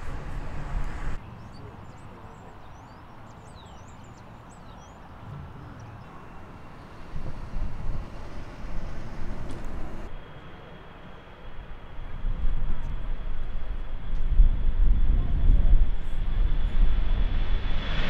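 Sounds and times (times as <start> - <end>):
small birds chirping: 0.0 - 10.1
jet engines rumbling: 0.0 - 18.0.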